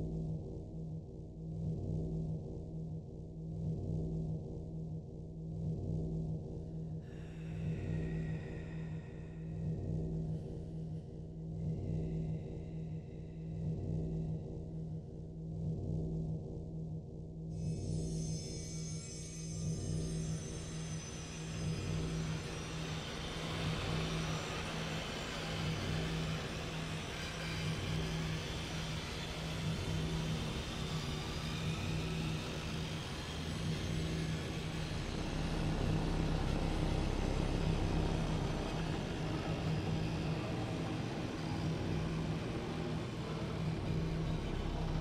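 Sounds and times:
low electronic drone: 0:17.5 - 0:45.0
electronic noise wash: 0:20.0 - 0:45.0.

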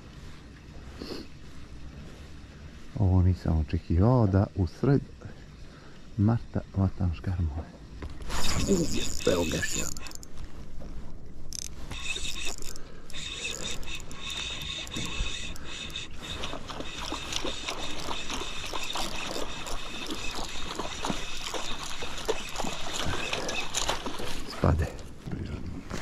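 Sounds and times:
fishing reel gears whirring: 0:08.2 - 0:10.7, 0:11.4 - 0:24.6
small reel clicks: 0:08.3 - 0:10.4, 0:11.5 - 0:24.2.

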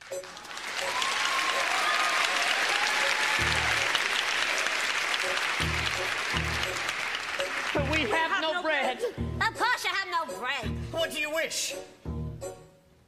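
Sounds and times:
audience applauding: 0:00.0 - 0:08.4
low music notes: 0:05.2 - 0:08.2, 0:09.1 - 0:13.0.

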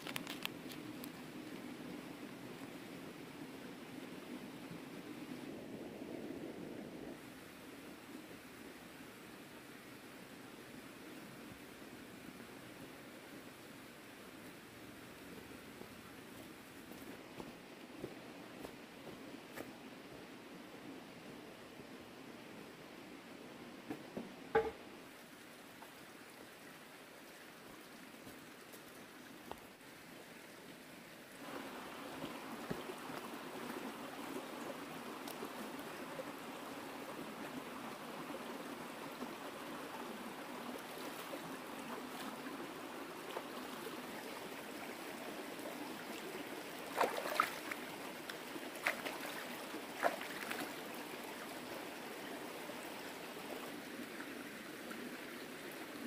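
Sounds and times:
light knocks: 0:23.9 - 0:24.8
water trickling: 0:31.4 - 0:54.3.

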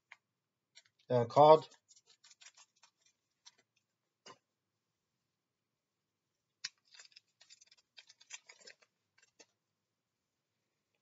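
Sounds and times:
wrapper crinkling: 0:00.8 - 0:03.8, 0:06.6 - 0:09.5.

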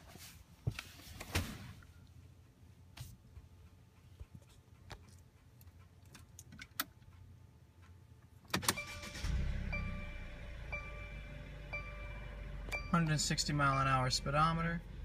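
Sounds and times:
car engine starting and idling: 0:08.4 - 0:15.0
dashboard chime: 0:09.6 - 0:14.8.

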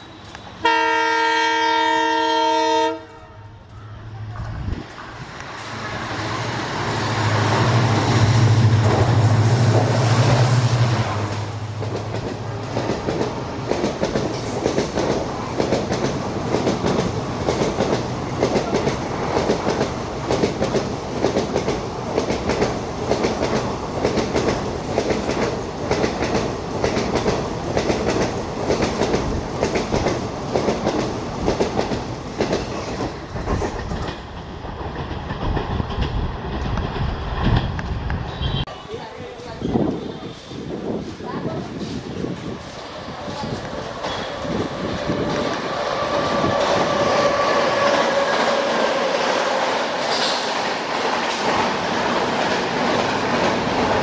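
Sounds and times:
train wheels clattering on rails: 0:11.2 - 0:38.6, 0:41.0 - 0:54.0.

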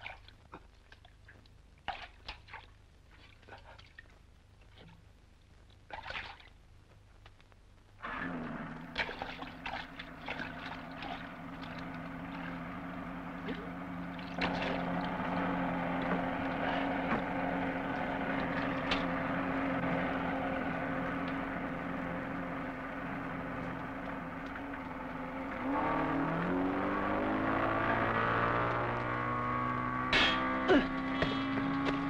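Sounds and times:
boat engine drone: 0:08.0 - 0:32.0
water splash: 0:08.8 - 0:19.2
water splashing against hull: 0:08.8 - 0:19.4.

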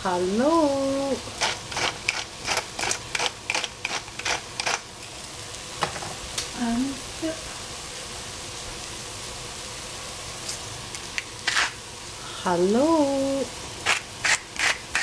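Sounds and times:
food sizzling: 0:00.0 - 0:15.0
spatula scraping frying pan: 0:01.4 - 0:04.9, 0:11.4 - 0:11.8.

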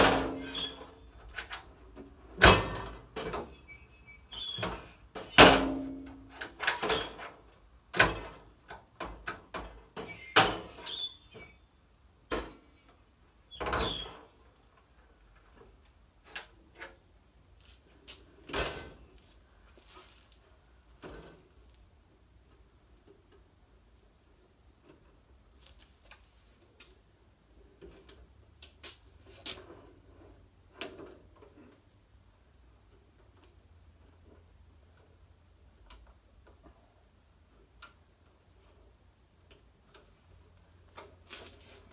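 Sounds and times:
metal drawers sliding open and shut: 0:00.0 - 0:01.7, 0:02.3 - 0:03.8, 0:04.4 - 0:11.5, 0:13.6 - 0:14.2, 0:18.4 - 0:19.1.

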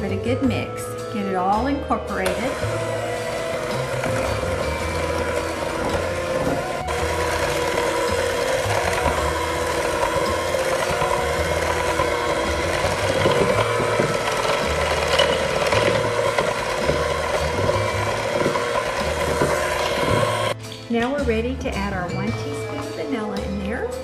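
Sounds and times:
electric hand mixer whining: 0:02.1 - 0:20.6.

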